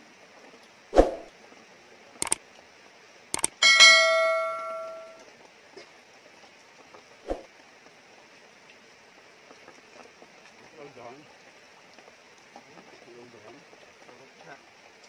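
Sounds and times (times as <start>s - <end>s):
short clicks: 3.4s - 3.6s
bright bell ding: 3.4s - 5.2s.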